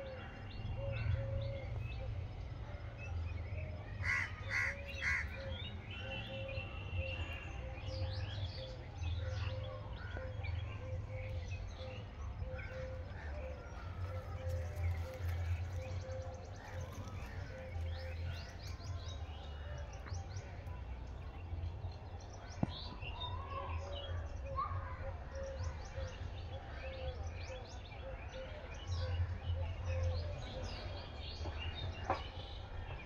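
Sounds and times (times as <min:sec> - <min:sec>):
loud bird calls: 0:04.0 - 0:07.4
steady low rumble: 0:11.0 - 0:23.1.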